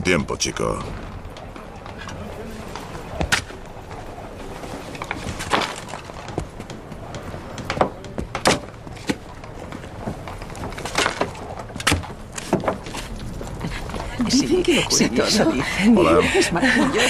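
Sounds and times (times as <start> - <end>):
low background bustle: 0.0 - 17.0.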